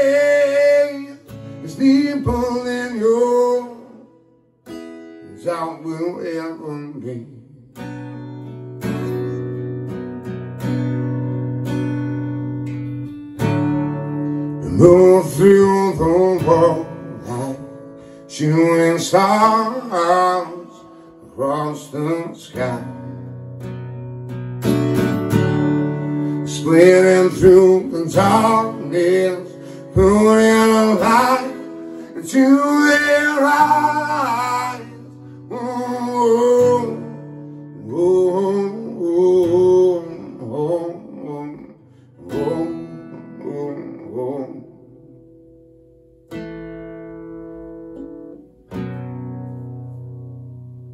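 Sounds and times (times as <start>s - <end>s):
man singing: 0.0s - 4.2s, 5.2s - 7.8s, 14.6s - 23.3s, 26.3s - 44.9s
acoustic guitar strummed: 0.0s - 50.9s.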